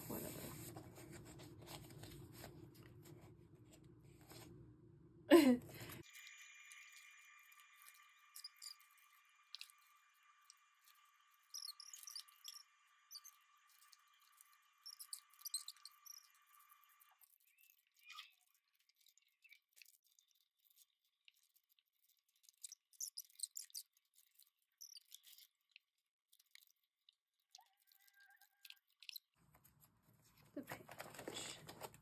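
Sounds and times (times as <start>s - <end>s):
plastic rustle: 29.4s - 32.0s
plastic sleeves crinkling: 29.4s - 32.0s.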